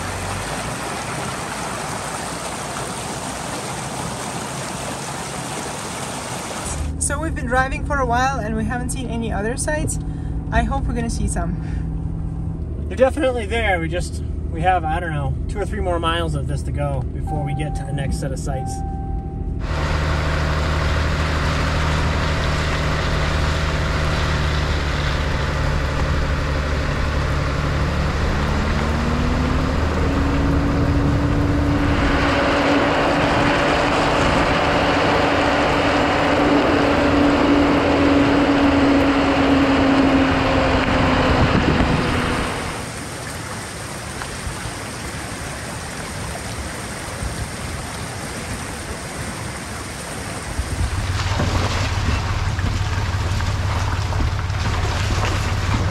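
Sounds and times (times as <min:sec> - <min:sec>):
truck engine running: 0:06.6 - 0:42.9, 0:50.6 - 0:55.9
tyres on gravel: 0:50.4 - 0:55.9.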